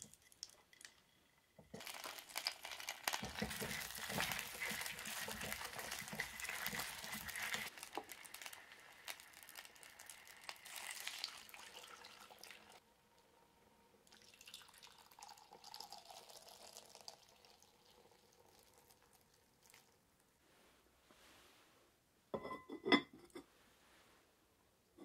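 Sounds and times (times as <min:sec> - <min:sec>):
liquid bubbling in pot: 0:00.0 - 0:12.8
liquid pouring into pot: 0:00.0 - 0:12.8, 0:14.0 - 0:20.0
food sizzling in oil: 0:01.6 - 0:12.8.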